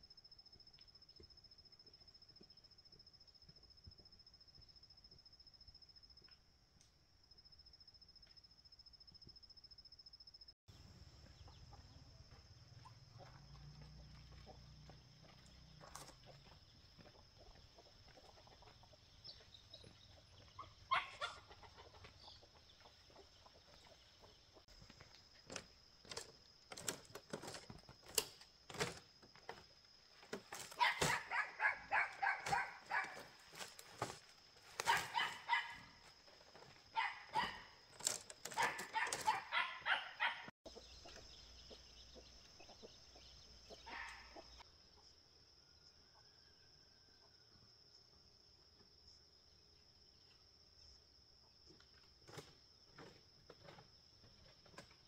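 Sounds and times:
puppy yapping: 0:30.8 - 0:33.2, 0:34.8 - 0:35.8, 0:38.6 - 0:40.5.

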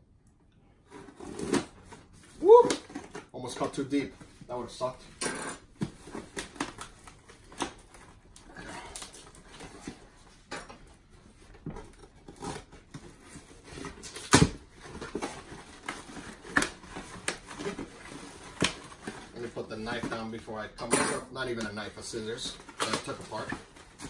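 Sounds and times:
cardboard scraping and rustling: 0:00.8 - 0:20.4, 0:22.2 - 0:24.0
cardboard box tearing: 0:01.0 - 0:03.2.

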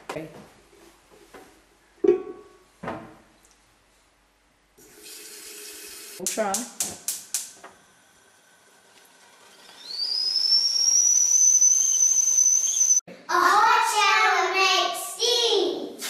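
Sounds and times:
kettle whistling: 0:07.3 - 0:13.0.

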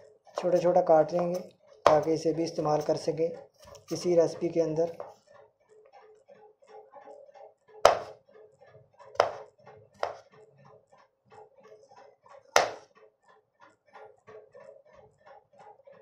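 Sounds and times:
knife chopping on wooden board: 0:00.4 - 0:02.1, 0:07.8 - 0:08.2, 0:09.2 - 0:10.3, 0:12.5 - 0:12.9.

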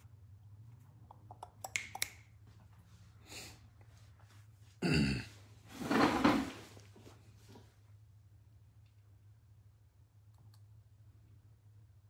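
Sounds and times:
person clearing throat: 0:04.8 - 0:05.4.

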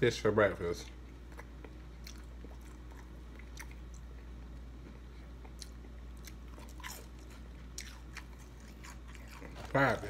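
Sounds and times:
steady low hum: 0:00.0 - 0:10.0
chewing crispy food: 0:00.8 - 0:10.0.

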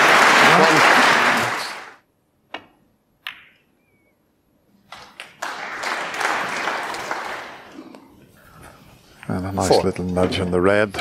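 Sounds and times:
audience applause: 0:00.0 - 0:02.0, 0:04.9 - 0:07.9.

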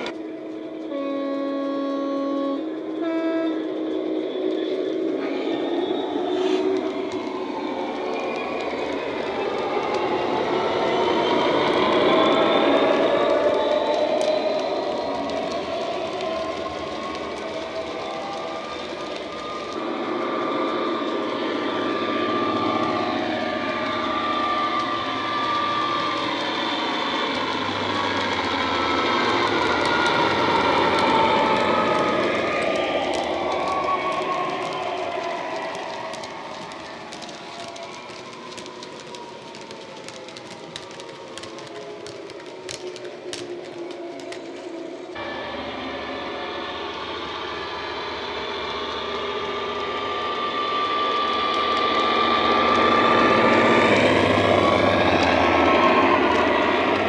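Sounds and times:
steady whine: 0:00.0 - 0:57.0
model wagons clicking over track joints: 0:22.6 - 0:45.2.

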